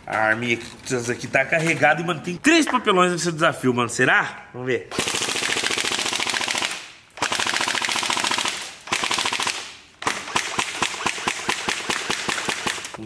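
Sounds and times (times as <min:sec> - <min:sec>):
airsoft rifle firing: 0:04.9 - 0:13.0.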